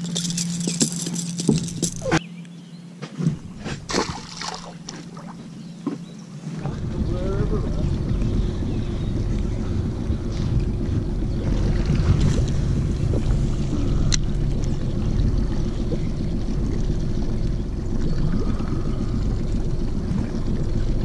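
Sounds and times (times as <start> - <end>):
wind buffeting microphone: 6.5 - 21.0.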